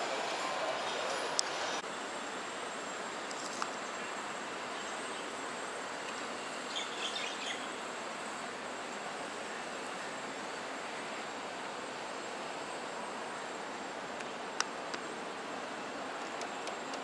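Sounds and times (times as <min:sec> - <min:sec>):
outdoor background noise: 0:00.0 - 0:17.0
bird chirps: 0:06.7 - 0:07.7.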